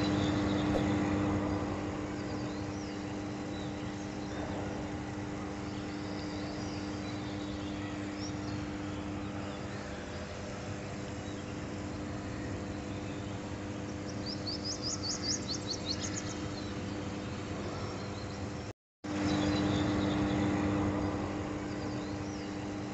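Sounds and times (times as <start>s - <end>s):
transformer humming: 0.0s - 14.4s
bird chirping: 0.0s - 22.9s.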